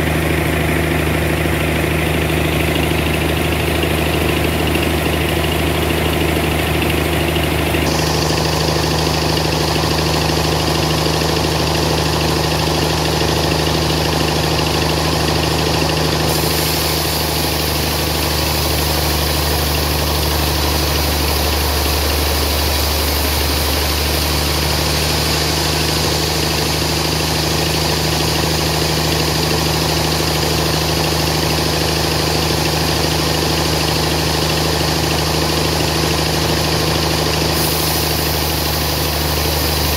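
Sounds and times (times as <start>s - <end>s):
band sawmill humming: 0.0s - 39.9s
saw blade cutting log hiss: 16.2s - 28.5s, 37.2s - 39.9s.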